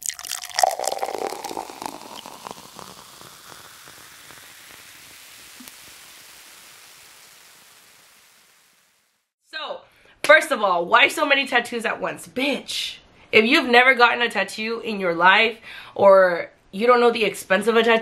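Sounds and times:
crackling into static hiss: 0.0 - 9.3.

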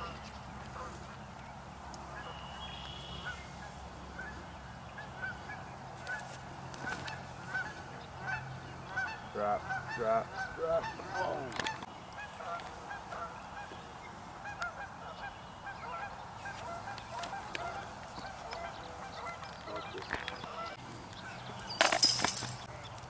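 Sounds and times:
waterbirds calling: 0.0 - 6.2, 6.8 - 23.0
metal chains jangling: 21.7 - 23.0.

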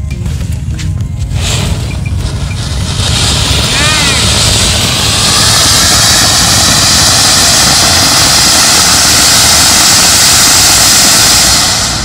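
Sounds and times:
firework fountain hissing: 1.2 - 12.0.

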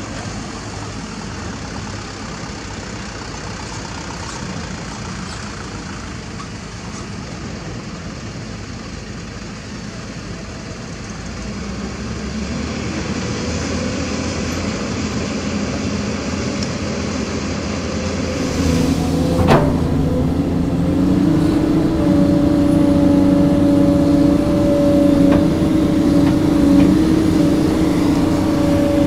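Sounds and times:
heavy diesel engines running: 0.0 - 29.0
even engine hum: 17.1 - 29.0.

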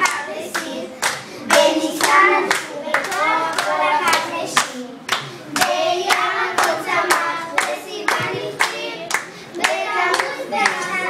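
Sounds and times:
adults clapping in time: 0.0 - 11.0
children singing together: 0.0 - 11.0.

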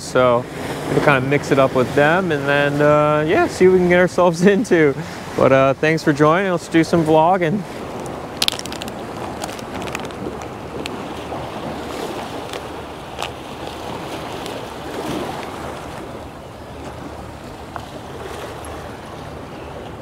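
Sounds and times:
surf washing against a jetty: 0.0 - 20.0
wind on microphone: 6.7 - 20.0.

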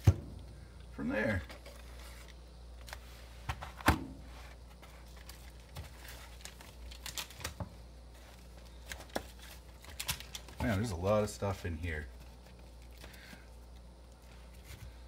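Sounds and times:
bubble wrap and cardboard crinkling: 1.2 - 15.0.

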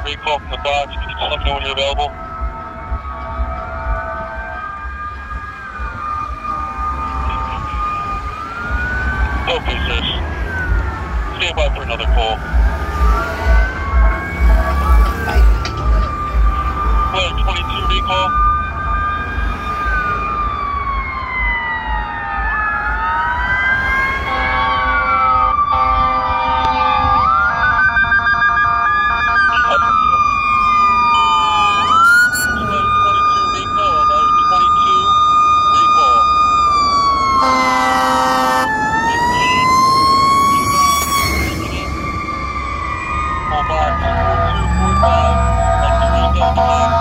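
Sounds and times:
distant siren wailing: 0.0 - 47.0
low traffic rumble: 0.0 - 47.0
steady siren tone: 0.0 - 47.0
horn blast: 24.2 - 27.2, 37.4 - 38.7, 43.6 - 47.0
siren fast stepped warble: 28.3 - 47.0.

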